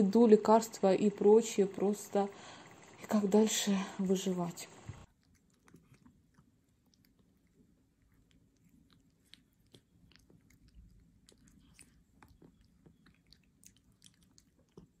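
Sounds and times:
cat chewing wet food: 5.0s - 15.0s.

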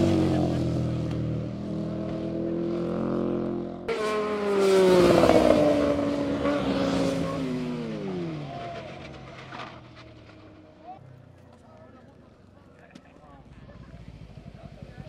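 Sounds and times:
motorcycle riding past: 0.0s - 11.1s, 13.2s - 15.0s
motorcycle engine running: 10.2s - 15.0s.

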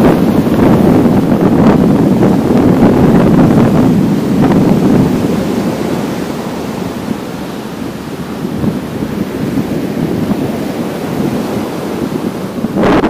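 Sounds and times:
surf washing up beach: 0.0s - 13.0s
wind buffeting microphone: 0.0s - 13.0s.

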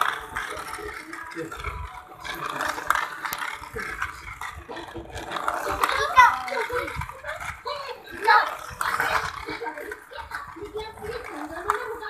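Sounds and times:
toy train whirring and rattling: 0.0s - 12.0s
child's voice: 5.6s - 12.0s.

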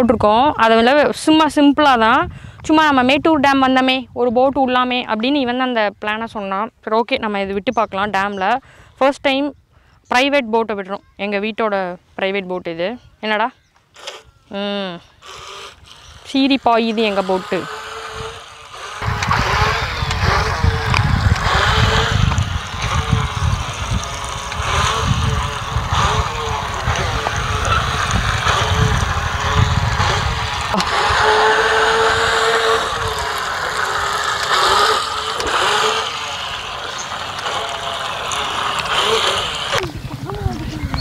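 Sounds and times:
toy speedboat motor whining: 13.9s - 40.0s.

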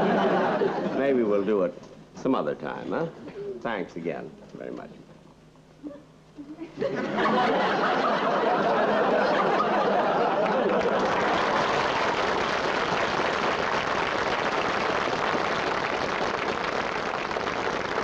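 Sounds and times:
audience applauding: 7.2s - 18.0s.

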